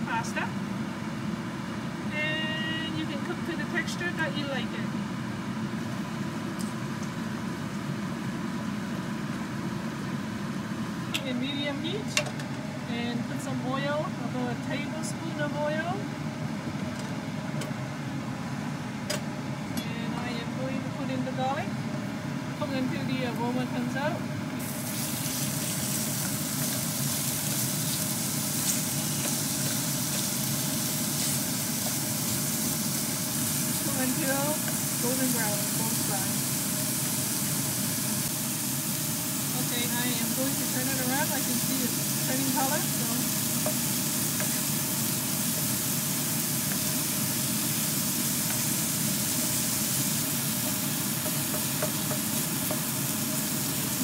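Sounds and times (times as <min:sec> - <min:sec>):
chicken sizzling in hot oil: 0:24.6 - 0:54.0.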